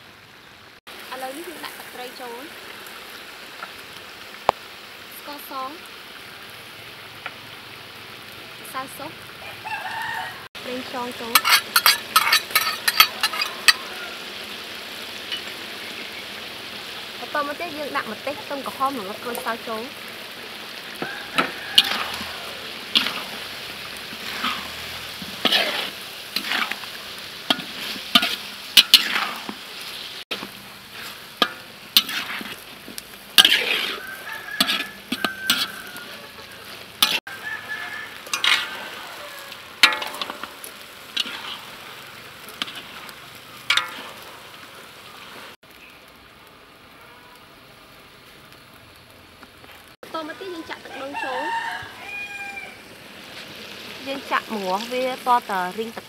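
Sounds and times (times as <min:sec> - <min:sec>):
sizzle of hot fat: 0:00.0 - 0:56.0
spatula scraping a wok: 0:10.8 - 0:45.6.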